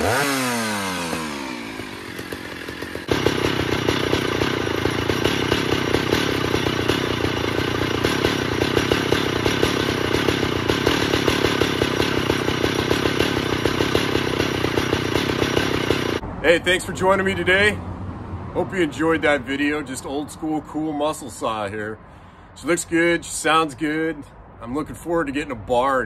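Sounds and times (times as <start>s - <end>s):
chainsaw engine idling: 0.0s - 17.3s.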